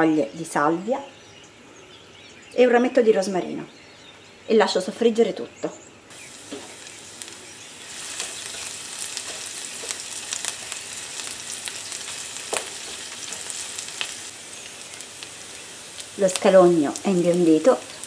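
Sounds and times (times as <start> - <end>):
food sizzling in oil: 6.1 - 18.0.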